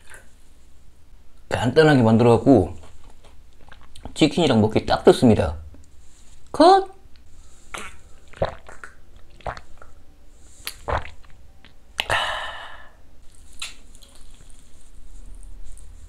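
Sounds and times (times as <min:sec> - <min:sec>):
plastic glove crinkling: 0:13.3 - 0:16.0.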